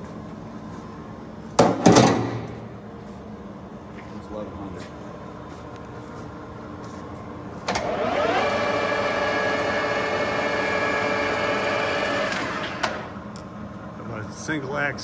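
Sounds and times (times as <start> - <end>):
lathe spindle gear whine: 7.8 - 12.9.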